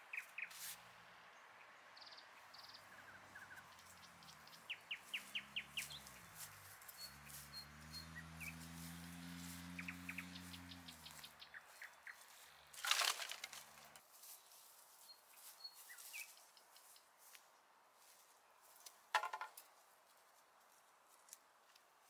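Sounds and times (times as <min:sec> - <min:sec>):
faint bird chirps: 0:01.4 - 0:08.6, 0:09.3 - 0:12.7, 0:15.0 - 0:17.3
firewood branches clattering on ground: 0:12.2 - 0:14.4.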